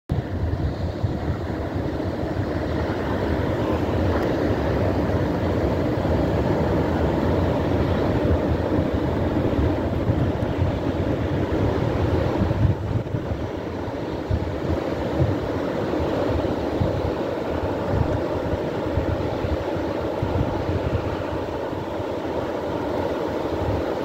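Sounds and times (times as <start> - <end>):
surf breaking on a beach: 0.1 - 24.0
wind rumbling on microphone: 0.1 - 24.0.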